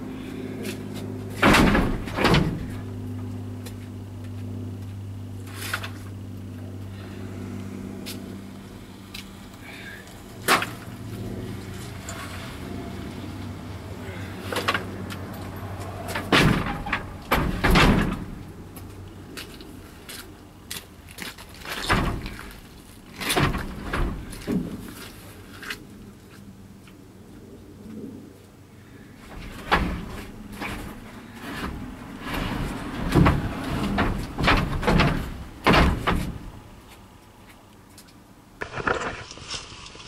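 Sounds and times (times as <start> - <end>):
wooden boards knocking and clattering: 1.3 - 2.9, 16.0 - 18.5, 21.5 - 24.9, 29.3 - 36.6.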